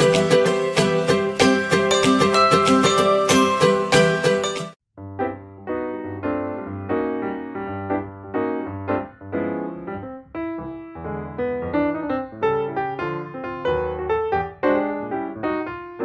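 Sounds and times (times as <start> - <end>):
keyboard tune: 0.0 - 12.1.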